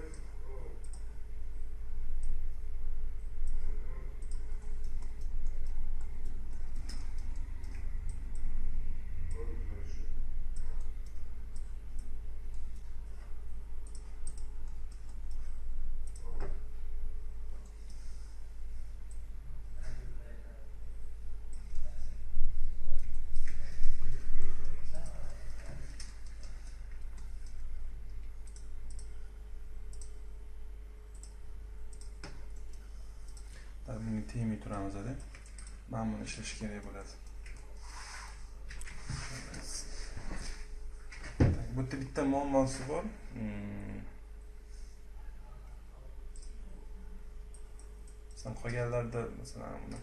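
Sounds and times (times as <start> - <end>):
computer mouse clicking: 0.0 - 1.1, 2.2 - 2.6, 3.4 - 8.6, 9.2 - 9.6, 10.5 - 16.6, 21.4 - 22.0, 22.9 - 29.3, 29.9 - 30.2, 31.1 - 35.8, 36.4 - 37.7, 46.3 - 46.6, 47.5 - 48.9, 49.6 - 50.0
low electrical hum: 0.0 - 50.0.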